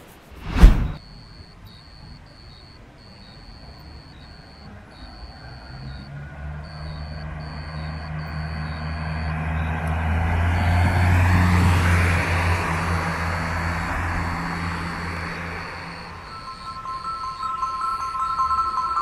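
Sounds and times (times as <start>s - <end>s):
vehicle engine and road noise: 0.1s - 1.1s, 2.9s - 19.0s.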